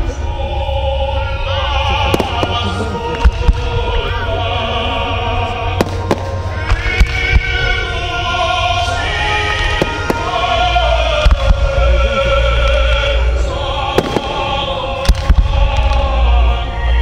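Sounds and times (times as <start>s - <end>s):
loud music: 0.0s - 17.0s
low rumble: 0.0s - 17.0s
fireworks bangs: 2.0s - 4.0s, 5.7s - 7.8s, 9.5s - 12.0s, 13.9s - 16.1s.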